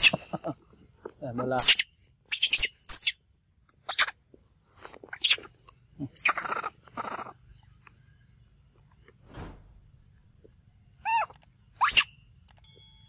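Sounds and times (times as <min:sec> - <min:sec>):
monkeys squealing and screeching: 0:00.0 - 0:00.2, 0:01.6 - 0:03.2, 0:03.8 - 0:04.2, 0:05.1 - 0:05.5, 0:06.1 - 0:07.4, 0:11.0 - 0:12.1.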